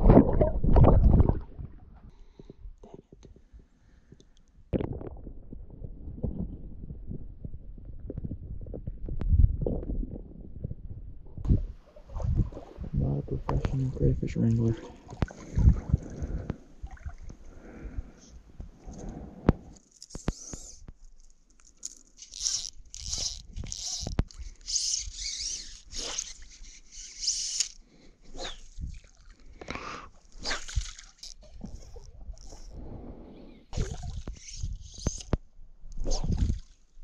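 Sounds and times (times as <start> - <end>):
fly line hissing through rod guides: 19.7 - 20.9, 21.8 - 28.8, 34.2 - 35.4.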